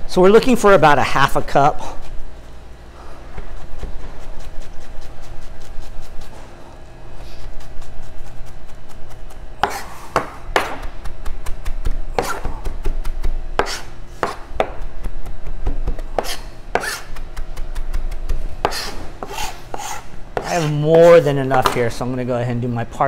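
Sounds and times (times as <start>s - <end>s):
blade scraping cutting board: 3.0s - 11.2s, 12.1s - 21.8s
knife chopping on cutting board: 7.5s - 21.1s.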